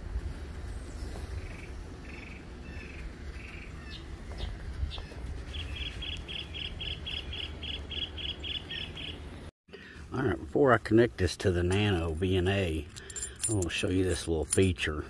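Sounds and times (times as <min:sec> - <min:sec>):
songbirds chirping: 0:00.5 - 0:09.5.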